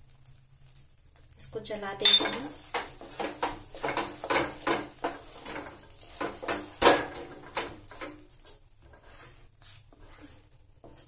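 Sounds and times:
wooden spatula scraping pan: 0:02.3 - 0:11.0.

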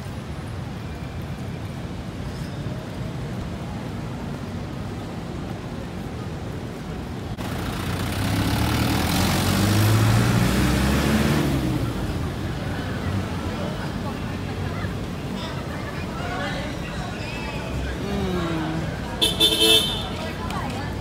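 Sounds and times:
city street traffic: 0:00.0 - 0:21.0
passing motor vehicle engine: 0:07.4 - 0:15.2, 0:17.8 - 0:21.0.

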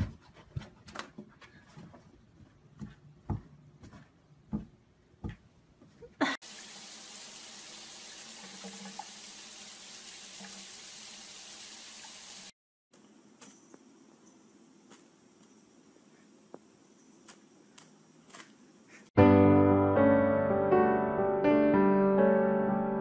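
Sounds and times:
water running from tap: 0:06.4 - 0:12.6.

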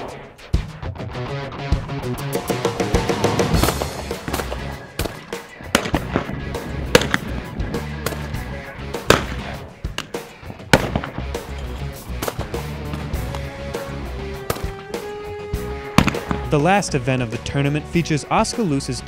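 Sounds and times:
shotgun shots: 0:00.0 - 0:00.4, 0:03.5 - 0:11.5, 0:12.2 - 0:13.3, 0:14.3 - 0:15.0, 0:15.9 - 0:16.6
background music: 0:00.0 - 0:19.0.

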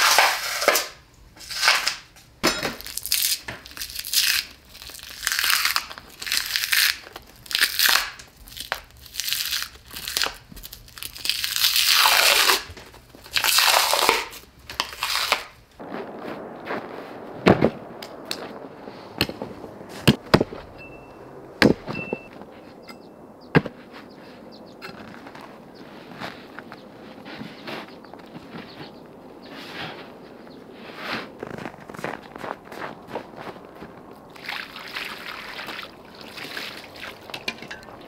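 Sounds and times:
frost and ice crunching: 0:00.0 - 0:38.0
short high beeps: 0:21.9 - 0:22.3.

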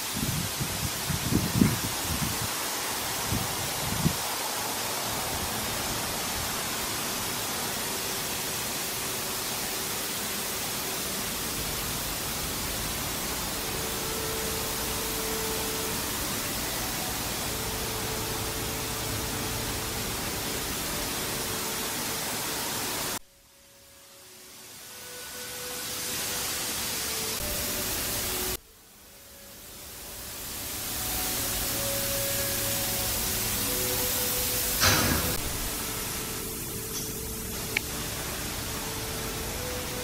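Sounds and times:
steady rushing noise: 0:00.0 - 0:23.3.

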